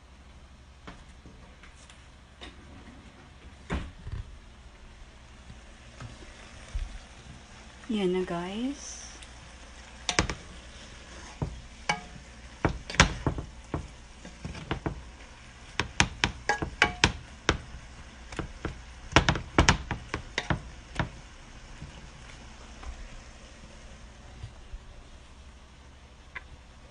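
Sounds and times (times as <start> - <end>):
faint sizzle: 0.0 - 26.9
wooden spatula knocking on pan: 10.1 - 10.4, 11.4 - 15.1, 15.7 - 17.7, 18.3 - 21.2.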